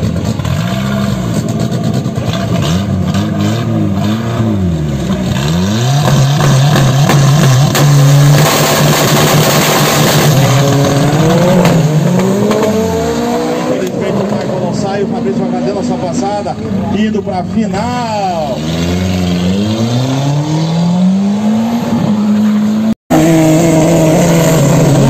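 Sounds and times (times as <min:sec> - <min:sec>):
race car engine revving: 0:00.0 - 0:16.9, 0:18.2 - 0:25.0.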